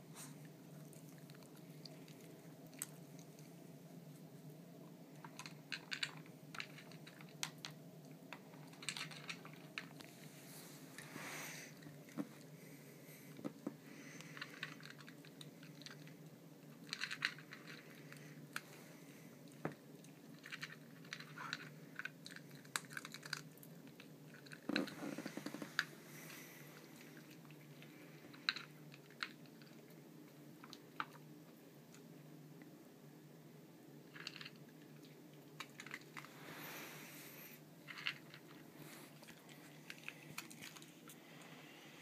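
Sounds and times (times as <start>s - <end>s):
dog crunching dry kibble: 5.1s - 10.2s, 14.0s - 18.7s, 19.5s - 30.0s, 34.1s - 36.4s, 37.8s - 41.2s.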